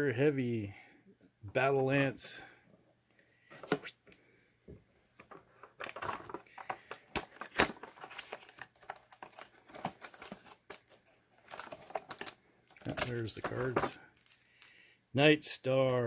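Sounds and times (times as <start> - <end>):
card and plastic crinkling: 5.2 - 14.9.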